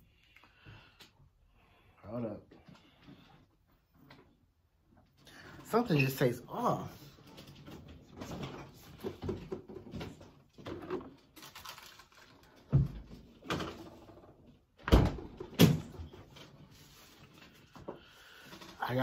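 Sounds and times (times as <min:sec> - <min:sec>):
rustling and knocks in refrigerator: 0:07.8 - 0:11.2, 0:12.6 - 0:14.2.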